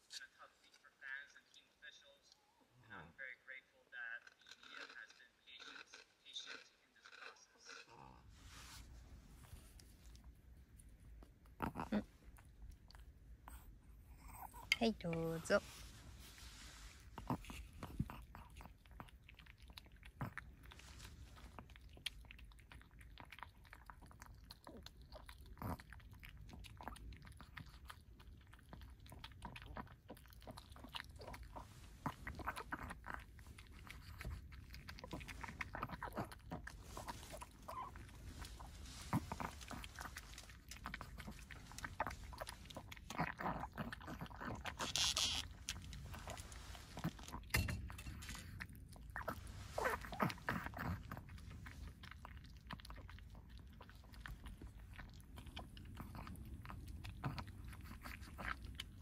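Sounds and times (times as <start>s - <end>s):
dog chewing dry kibble: 16.8s - 59.0s.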